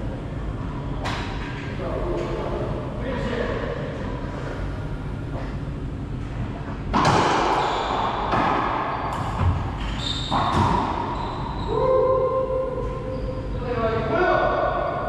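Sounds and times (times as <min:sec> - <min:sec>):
racquets hitting ball: 0:06.9 - 0:11.2.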